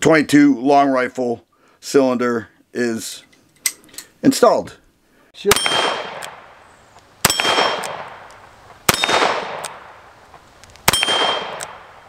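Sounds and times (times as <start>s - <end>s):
steel target plate ringing: 5.5s - 6.2s, 7.2s - 8.0s, 10.9s - 11.6s
revolver shots: 5.5s - 6.6s, 7.2s - 8.3s, 8.9s - 10.0s, 10.8s - 12.0s.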